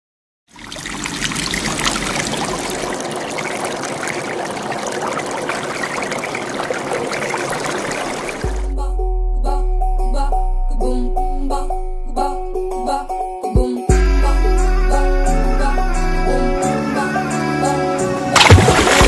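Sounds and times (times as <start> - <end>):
water pouring and splashing: 0.5 - 8.7, 18.4 - 19.0.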